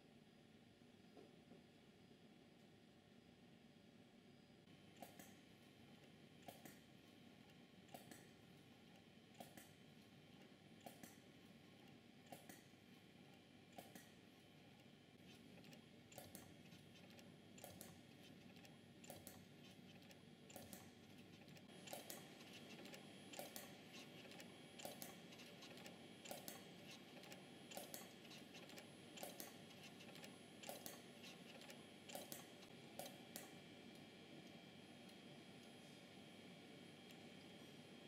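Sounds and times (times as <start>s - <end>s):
low machine hum: 0.1s - 38.0s
machine tooling double clicks: 21.9s - 33.5s.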